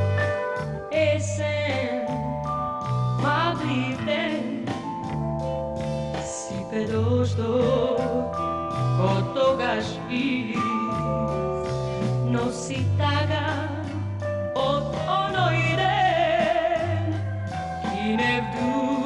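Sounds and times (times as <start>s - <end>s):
band accompaniment: 0.0s - 19.0s
woman singing: 0.9s - 5.0s, 6.2s - 19.0s.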